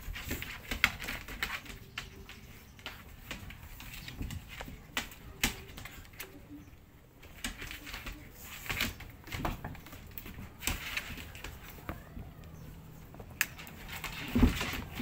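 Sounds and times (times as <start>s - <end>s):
cardboard box and wrapping rustling: 13.6s - 15.0s.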